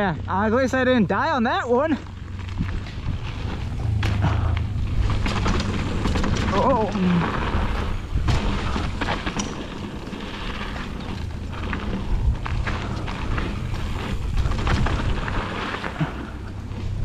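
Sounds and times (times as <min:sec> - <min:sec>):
bike tyre noise: 0:00.0 - 0:17.0
bike clicks and knocks: 0:02.1 - 0:17.0
wind buffeting microphone: 0:02.1 - 0:17.0.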